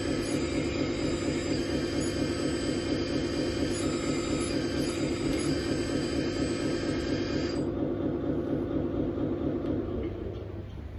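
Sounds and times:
high motor whine: 0.0s - 7.8s.

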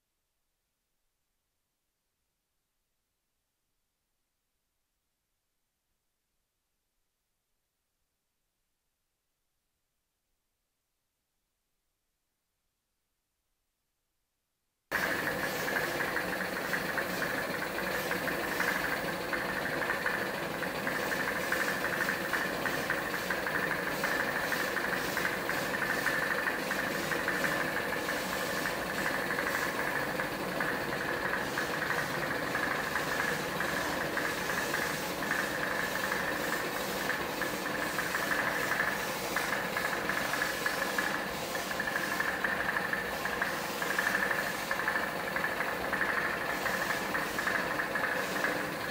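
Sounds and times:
air compressor running: 14.9s - 48.9s.

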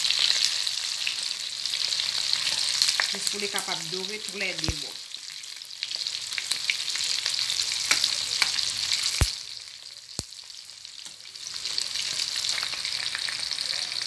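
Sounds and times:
chicken deep-frying in oil: 0.0s - 14.0s.

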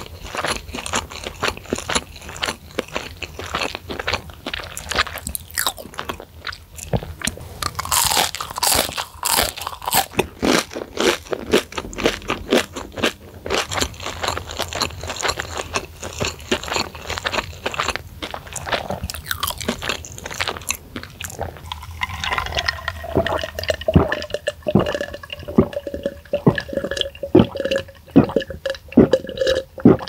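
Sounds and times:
crunchy chewing of fried food: 0.0s - 30.0s.

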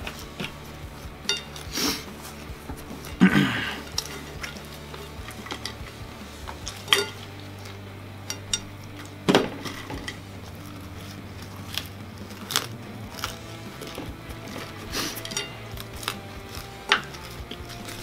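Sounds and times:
low steady hum: 0.0s - 18.0s
plate clinking and knocking: 1.2s - 1.7s, 6.5s - 10.4s.

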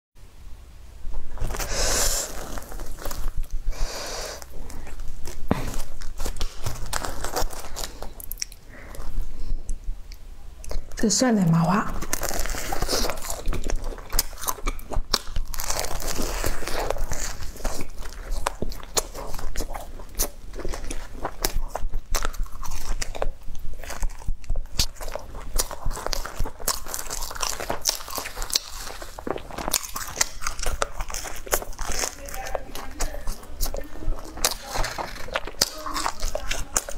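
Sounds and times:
bread crust crunching: 1.2s - 9.8s, 12.0s - 36.9s
bread tearing: 1.3s - 9.1s, 12.0s - 36.9s
wet mouth clicks: 8.2s - 8.6s.

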